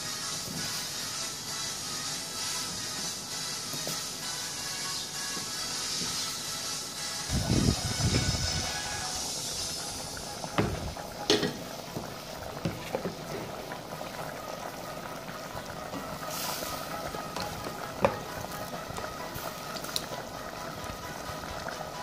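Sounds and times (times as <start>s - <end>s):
sauce bubbling in a pot: 8.2s - 22.0s
food hissing as added to pot: 16.2s - 17.0s.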